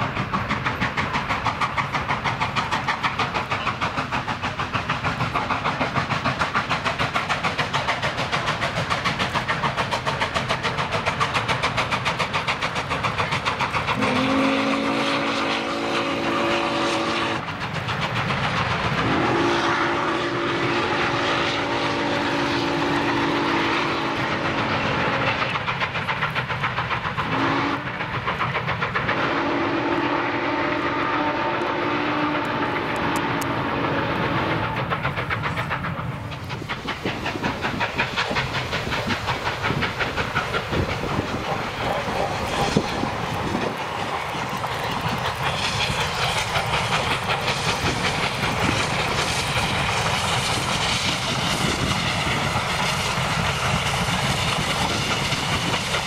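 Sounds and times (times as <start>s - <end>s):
steam locomotive chuffing: 0.0s - 56.0s
steam locomotive whistle: 14.0s - 17.5s, 19.0s - 25.6s, 27.2s - 28.0s, 29.0s - 34.9s.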